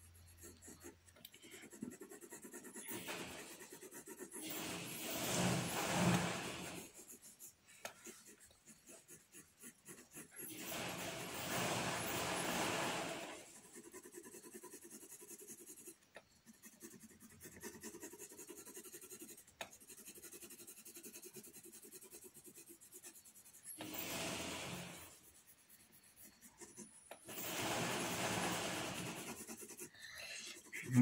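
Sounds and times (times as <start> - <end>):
pencil scratching on paper: 0.0 - 31.0.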